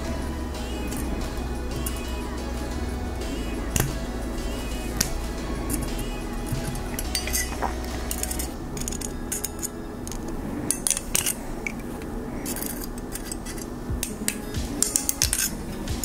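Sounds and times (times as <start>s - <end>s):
pliers clicking on wire: 12.4s - 15.6s.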